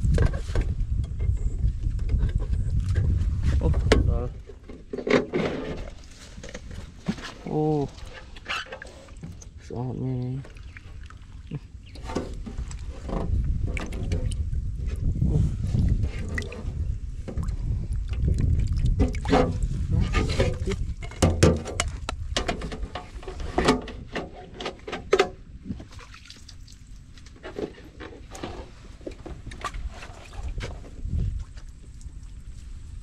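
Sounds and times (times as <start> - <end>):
water splashing in a plastic tub: 5.5 - 22.1, 25.6 - 28.7
low rumble: 11.0 - 21.2.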